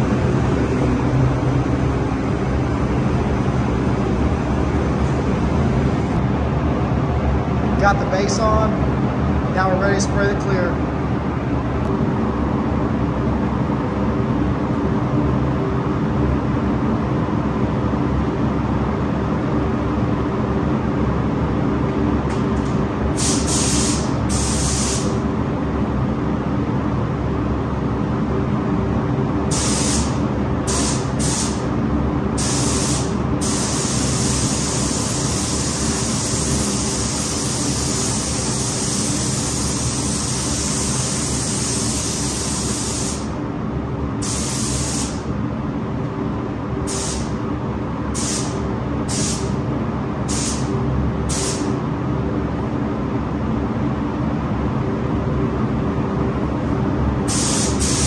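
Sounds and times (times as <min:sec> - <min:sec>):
low mechanical hum: 0:00.0 - 0:58.0
spray gun hissing: 0:23.2 - 0:25.2, 0:29.5 - 0:31.7, 0:32.4 - 0:43.3, 0:44.2 - 0:45.2, 0:46.9 - 0:47.4, 0:48.2 - 0:49.5, 0:50.3 - 0:50.7, 0:51.3 - 0:51.7, 0:57.3 - 0:58.0.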